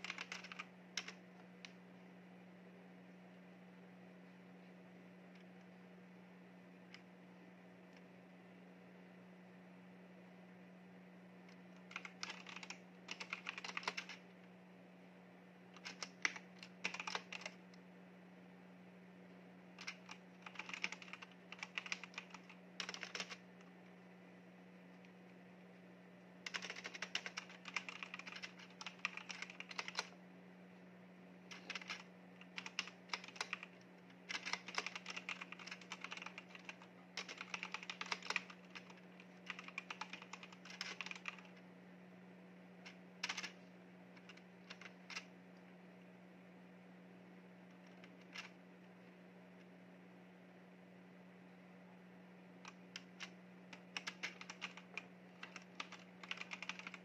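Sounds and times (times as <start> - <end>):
mechanical keyboard typing: 0.0 - 1.8, 11.8 - 14.2, 15.7 - 17.6, 19.8 - 23.4, 26.4 - 30.2, 31.5 - 41.6, 42.9 - 43.6, 44.2 - 45.3, 47.8 - 48.6, 52.6 - 57.0
faint low hum: 0.0 - 57.0.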